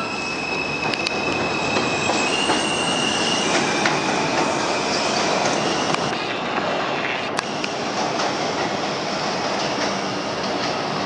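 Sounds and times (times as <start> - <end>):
train wheels squealing: 0.0 - 6.4
rail clicks: 0.0 - 11.0
train rumbling on elevated track: 0.0 - 11.0.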